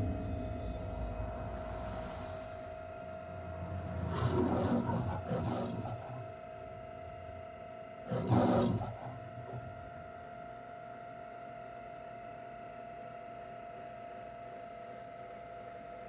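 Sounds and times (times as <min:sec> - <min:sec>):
faint steady hum: 0:00.0 - 0:16.0
lion roaring through speakers: 0:03.3 - 0:06.3.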